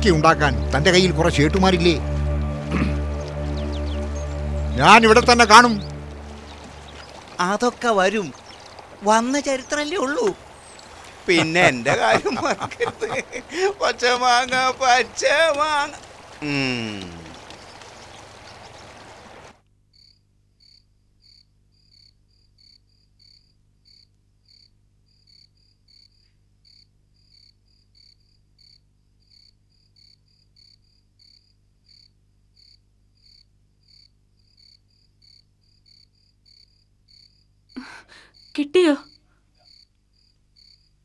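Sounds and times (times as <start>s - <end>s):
steady hiss: 4.8s - 19.5s.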